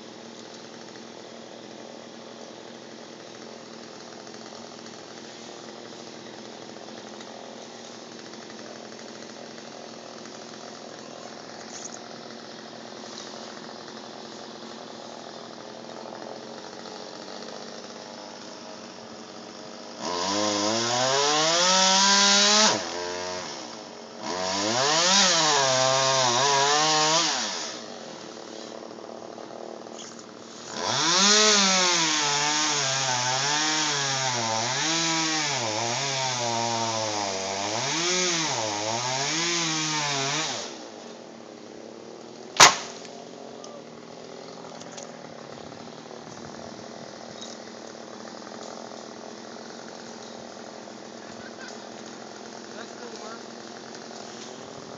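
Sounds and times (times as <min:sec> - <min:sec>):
chainsaw cutting wood: 0:00.0 - 0:54.9
sharp crack: 0:42.4 - 0:43.8.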